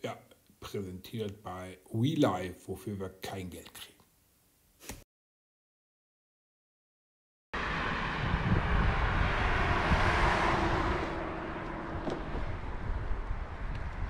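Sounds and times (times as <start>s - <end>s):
motor vehicle passing by: 7.6s - 14.0s.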